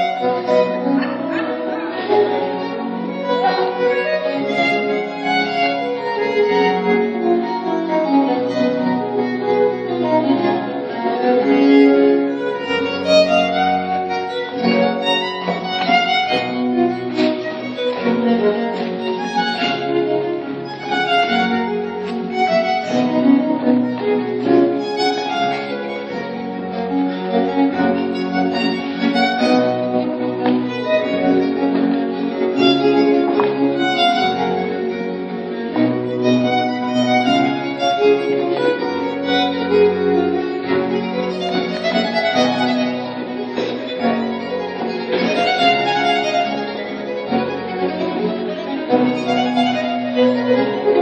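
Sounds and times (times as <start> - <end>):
violin-led dance music: 0.0 - 51.0.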